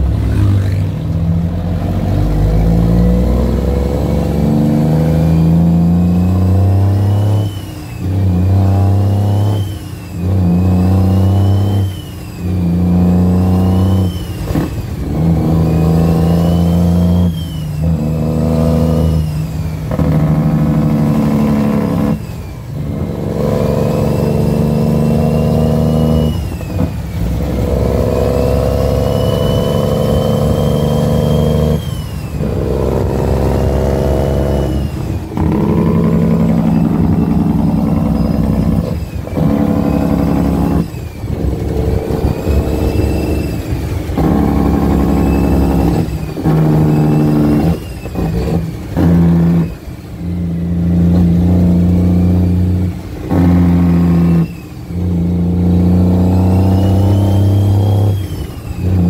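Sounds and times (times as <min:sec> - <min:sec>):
diesel truck engine accelerating: 0:00.0 - 0:59.0
high engine whine: 0:00.0 - 0:59.0.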